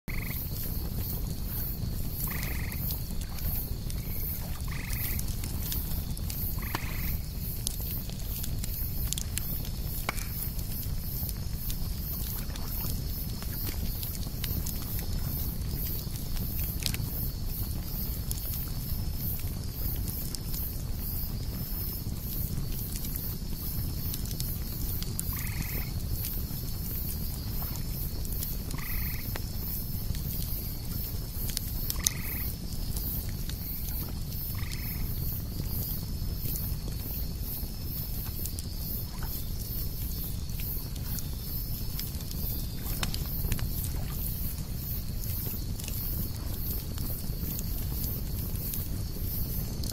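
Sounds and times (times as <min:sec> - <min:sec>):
insect high whine: 0:00.1 - 0:07.4, 0:25.3 - 0:26.0, 0:32.0 - 0:49.8
campfire crackling and popping: 0:00.1 - 0:49.9
cicadas droning: 0:00.1 - 0:49.9
insects chirping fast: 0:00.1 - 0:49.9.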